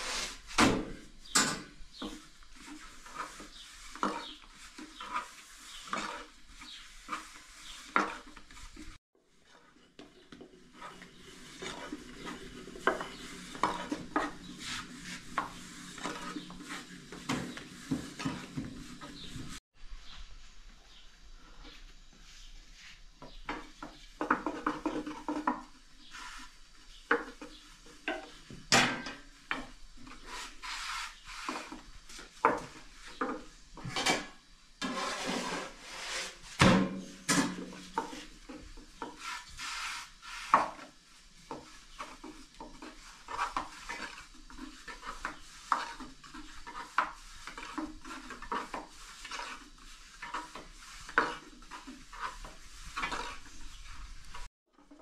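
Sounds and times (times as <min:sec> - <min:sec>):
rolling pin on wooden board: 0:09.5 - 0:19.6, 0:37.6 - 0:54.5.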